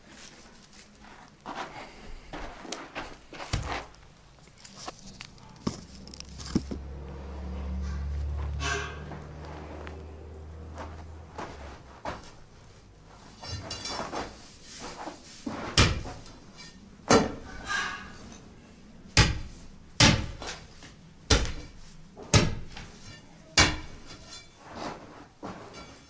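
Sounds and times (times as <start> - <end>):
scraping and shuffling: 0.0 - 18.6, 21.7 - 26.0
crowbar striking concrete: 19.2 - 20.6, 21.3 - 24.5.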